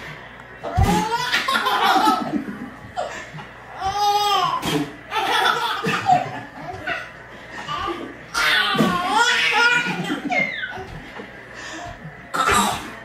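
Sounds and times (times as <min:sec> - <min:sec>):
babies laughing: 0:00.6 - 0:11.0.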